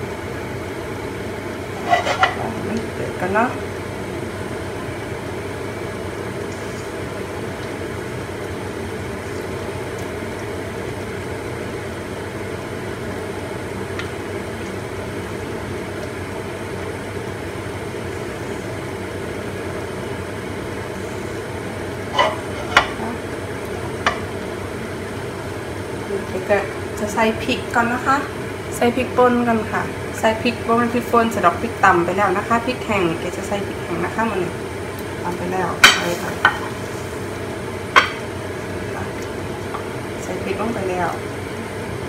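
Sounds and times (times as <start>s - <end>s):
giblets simmering in a wok: 0.0s - 42.0s
spatula knocking against wok: 37.9s - 38.2s.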